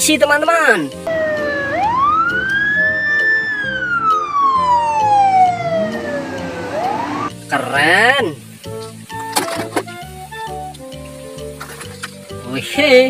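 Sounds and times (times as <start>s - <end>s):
soft background music: 0.0s - 13.0s
police siren wailing: 1.1s - 7.4s.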